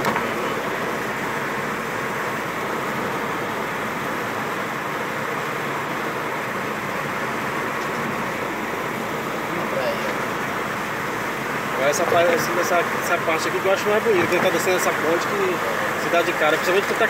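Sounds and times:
road and tyre noise: 0:00.0 - 0:17.0.

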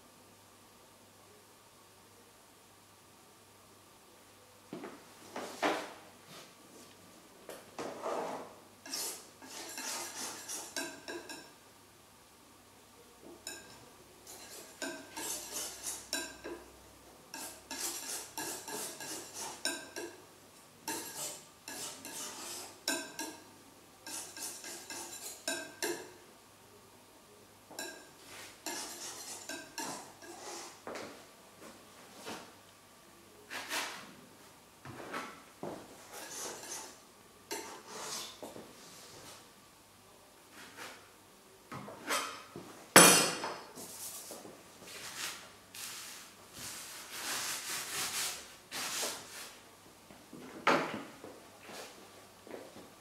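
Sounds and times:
paintbrush scrubbing on canvas: 0:08.9 - 0:10.8, 0:44.9 - 0:49.6.

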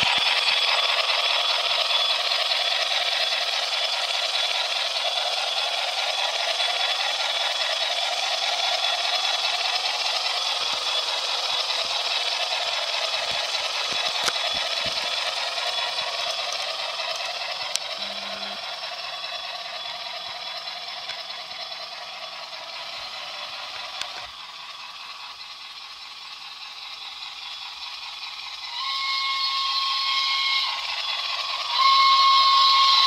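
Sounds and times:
model train rolling clatter: 0:00.0 - 0:33.0
steam locomotive whistle: 0:17.8 - 0:18.8, 0:28.6 - 0:33.0.

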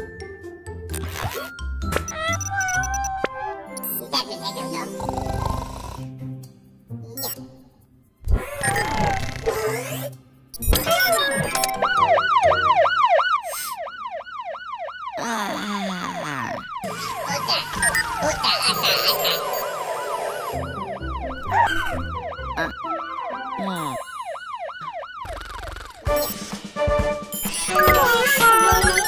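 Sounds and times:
cartoon sound effects: 0:01.0 - 0:04.7, 0:08.3 - 0:12.0, 0:15.2 - 0:24.4, 0:25.2 - 0:26.1, 0:27.5 - 0:29.0
fire truck siren wailing: 0:11.5 - 0:26.0.

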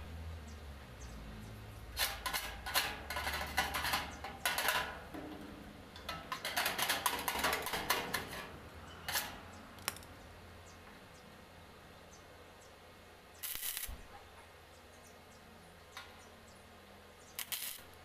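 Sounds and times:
metallic crackling and scratching: 0:01.9 - 0:10.0, 0:13.4 - 0:14.1, 0:17.4 - 0:18.0.

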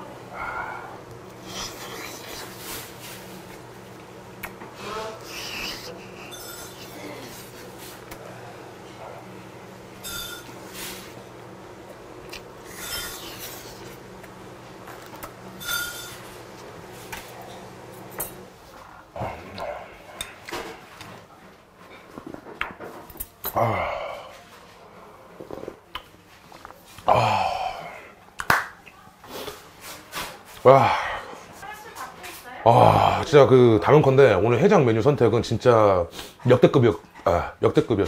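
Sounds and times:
low steady hum: 0:00.0 - 0:22.5
spoon and chopsticks clinking dishes: 0:06.2 - 0:07.1, 0:10.0 - 0:10.6, 0:15.6 - 0:16.2
person exhaling aah: 0:23.6 - 0:24.4, 0:27.1 - 0:28.1, 0:32.7 - 0:33.3.

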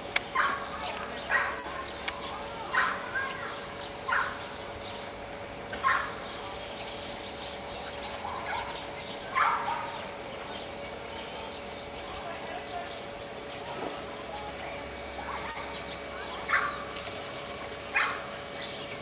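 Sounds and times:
faint hum: 0:00.0 - 0:19.0.

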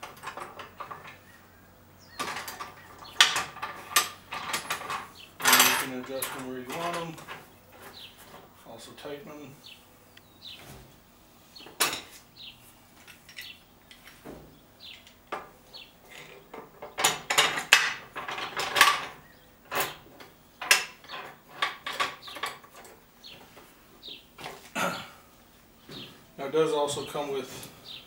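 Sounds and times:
metal clamp clanking and clicking: 0:02.2 - 0:07.4.

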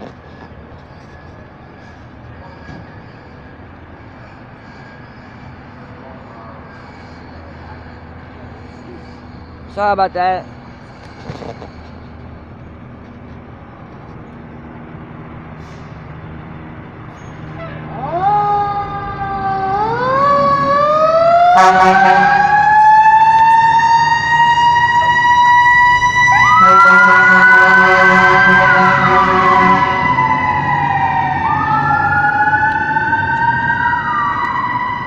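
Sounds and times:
fire engine siren wailing: 0:00.0 - 0:09.8, 0:10.5 - 0:35.0
second high siren tone: 0:17.6 - 0:35.0
air horn blasts: 0:21.4 - 0:22.7, 0:26.3 - 0:30.8.

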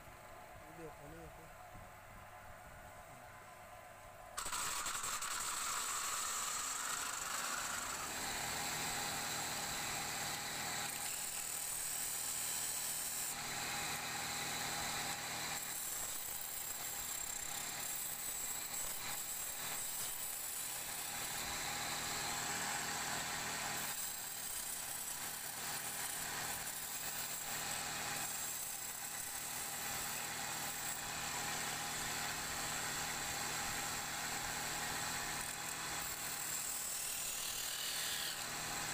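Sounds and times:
tool cutting spinning wood: 0:04.4 - 0:38.9.

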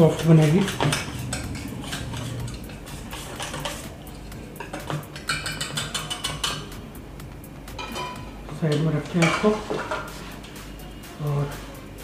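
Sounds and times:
whisk beating batter in metal bowl: 0:00.0 - 0:06.7.

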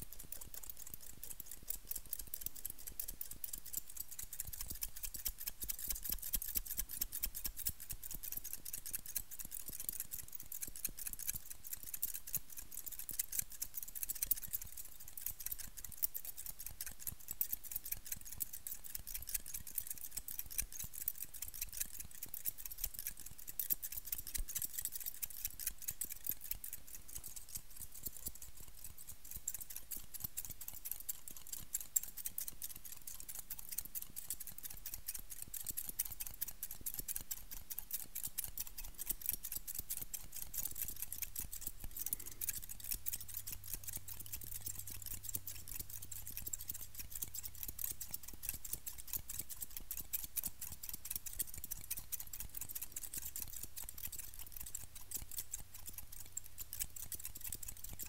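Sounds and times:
scissors snipping: 0:00.0 - 0:58.0.

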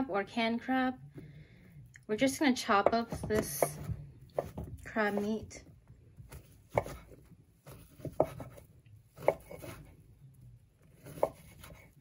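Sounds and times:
knife slicing on wooden board: 0:06.7 - 0:09.9, 0:11.0 - 0:12.0.

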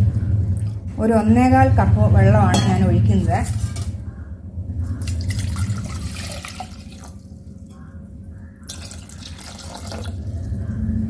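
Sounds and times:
water splashing in a steel saucepan: 0:05.0 - 0:07.2, 0:08.7 - 0:10.2.

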